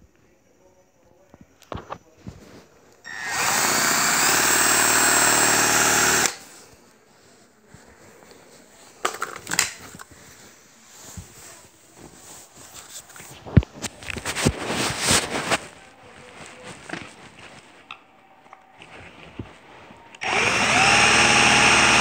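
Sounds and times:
cordless drill whining: 3.1s - 6.4s, 20.2s - 22.0s.

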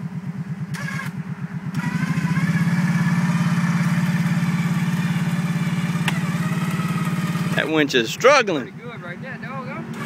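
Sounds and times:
quad engine idling: 0.0s - 10.0s
electric winch motor whining: 0.7s - 7.8s.

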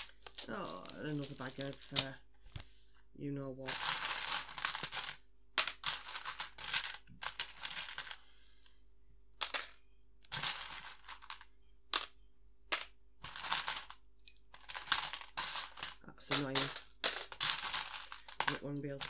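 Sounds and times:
plastic pieces clattering: 0.0s - 2.7s, 3.6s - 8.3s, 9.4s - 19.0s.

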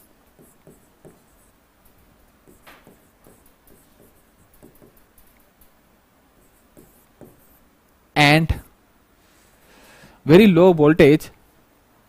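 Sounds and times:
pen tapping and scratching screen: 0.0s - 5.8s, 6.4s - 7.6s.

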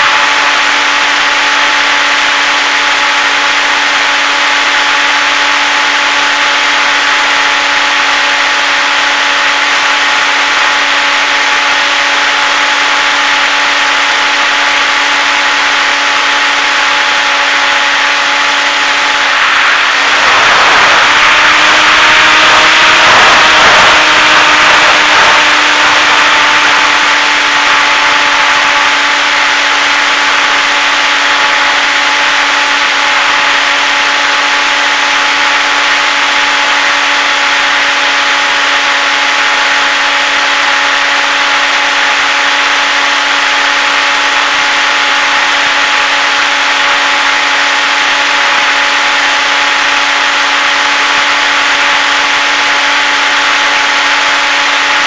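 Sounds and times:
electric motor and propeller: 0.0s - 55.0s
wind hissing over microphone: 15.8s - 33.7s.

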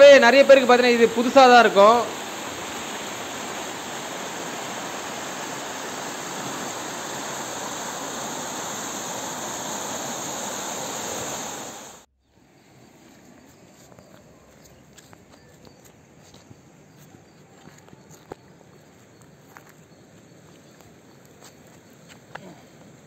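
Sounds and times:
rushing floodwater: 0.0s - 12.0s.

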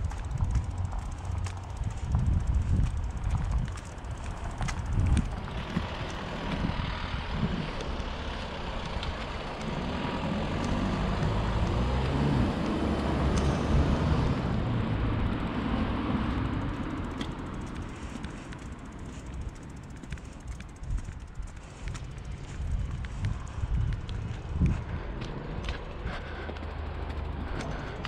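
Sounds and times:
motor vehicle passing: 0.0s - 28.0s.

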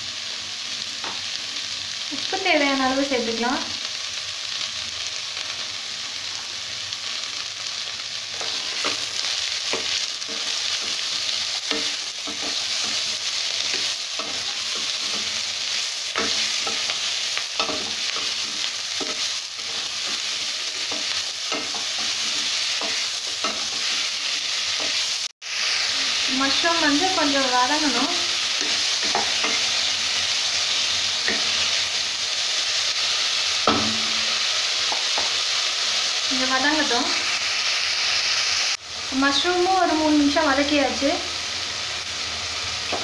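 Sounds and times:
vegetables sizzling in hot oil: 0.0s - 43.0s.

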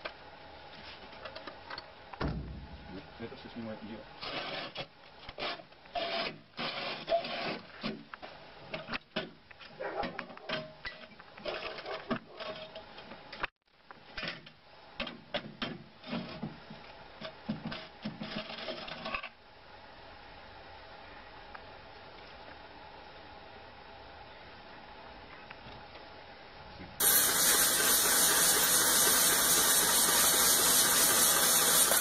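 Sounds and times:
metal knocks: 2.2s - 3.0s
metal scraping and rubbing: 27.0s - 32.0s.

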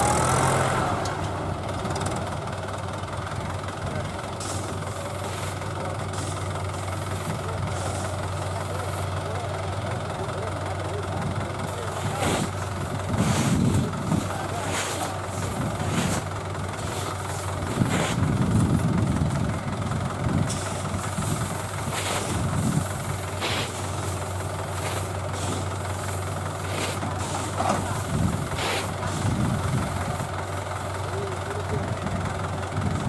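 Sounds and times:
tractor diesel engine running: 0.0s - 33.0s
short hissy puffs: 20.5s - 27.6s.

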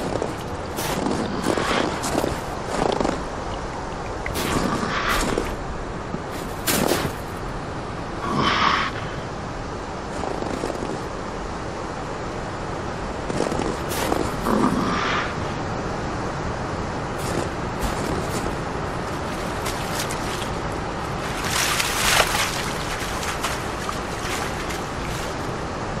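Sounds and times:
waves sloshing: 0.0s - 11.2s, 13.2s - 26.0s
animal splashing into water: 17.2s - 25.6s.

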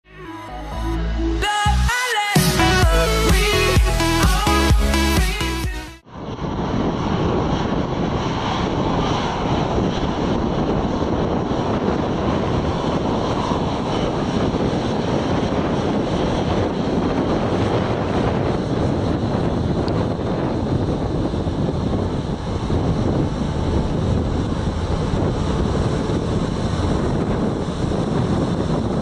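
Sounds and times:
jet engines running: 0.5s - 29.0s
wind buffeting microphone: 6.1s - 29.0s.

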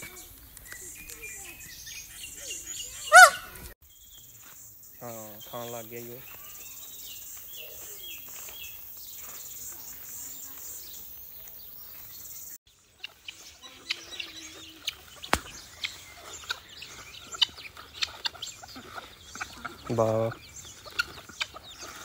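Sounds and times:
small birds chirping: 0.0s - 22.0s
chickens clucking: 2.4s - 3.8s, 12.8s - 22.0s.

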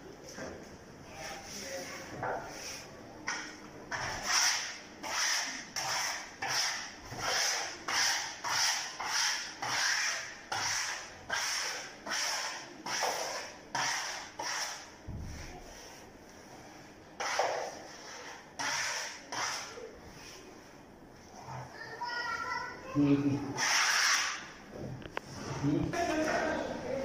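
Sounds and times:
sponge scrubbing wallpaper: 3.9s - 22.0s, 23.4s - 24.5s.

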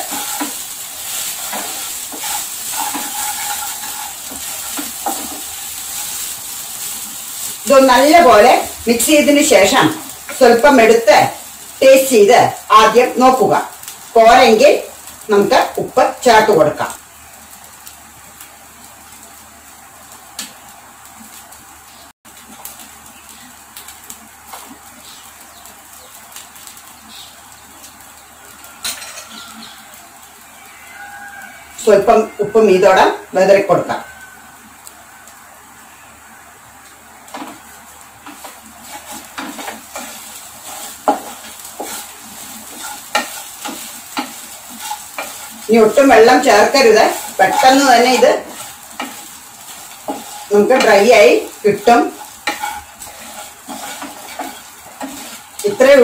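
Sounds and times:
spatula scraping pan: 0.0s - 11.0s, 37.3s - 56.0s
light frying sizzle: 0.0s - 56.0s.

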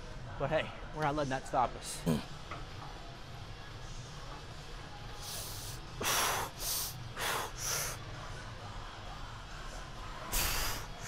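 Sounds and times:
man breathing forcefully: 10.3s - 10.9s.

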